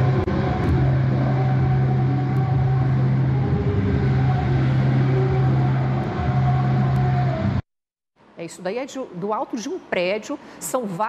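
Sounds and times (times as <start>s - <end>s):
distant amplified worship service: 0.0s - 7.6s.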